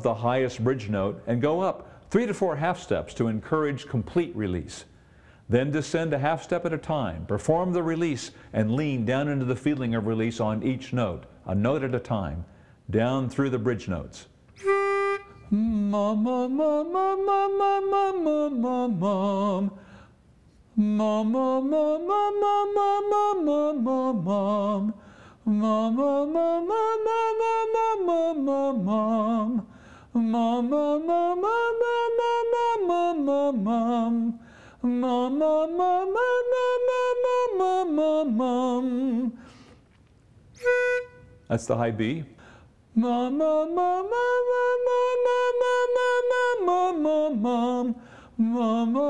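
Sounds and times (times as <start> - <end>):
man singing vocal exercise: 14.6 - 19.8, 20.8 - 39.4, 42.9 - 49.0.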